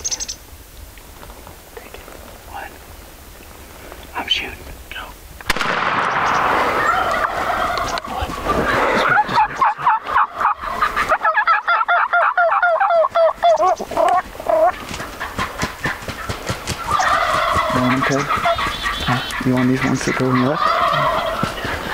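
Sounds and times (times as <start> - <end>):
turkeys gobbling: 5.6 - 21.9.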